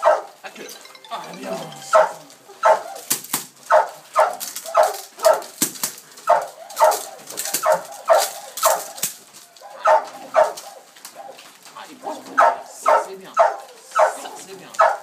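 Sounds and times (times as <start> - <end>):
dog barking: 0.0 - 0.4, 2.0 - 3.1, 3.7 - 5.6, 6.2 - 9.0, 9.6 - 15.0.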